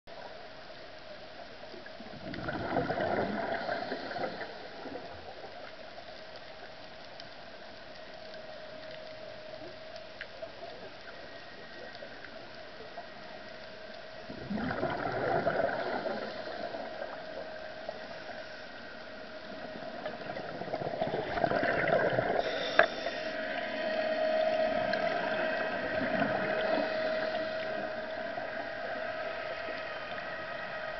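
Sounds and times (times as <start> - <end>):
scuba exhaust bubbles gurgling: 1.9 - 5.6, 12.8 - 30.9
underwater motor whine: 6.0 - 30.9.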